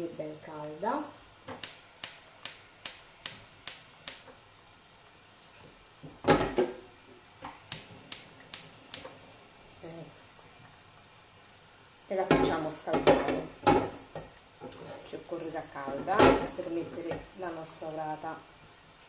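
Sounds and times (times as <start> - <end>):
gas hob igniter clicking: 1.5 - 4.4, 7.4 - 9.2
grill pan clunking on metal grate: 6.0 - 6.8, 12.3 - 14.3, 15.9 - 17.2.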